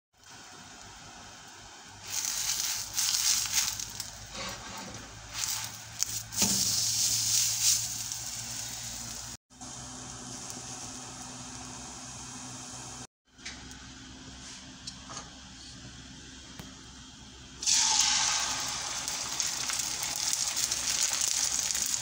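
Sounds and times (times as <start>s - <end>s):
flatbread sizzling in oil: 0.2s - 12.9s, 17.6s - 22.0s.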